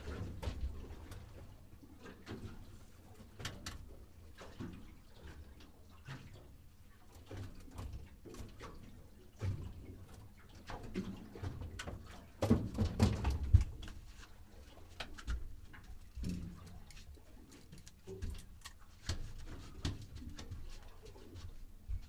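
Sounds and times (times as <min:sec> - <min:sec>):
knocks and thumps on boat deck: 0:10.8 - 0:14.0.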